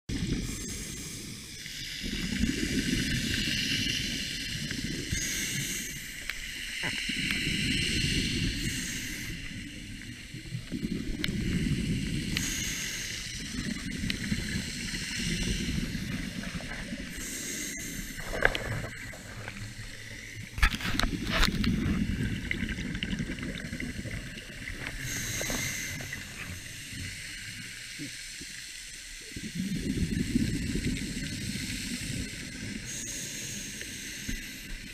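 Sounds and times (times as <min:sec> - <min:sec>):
regulator hissing inhales: 0:12.0 - 0:13.5, 0:25.0 - 0:28.0
bubbling exhales: 0:13.4 - 0:27.3.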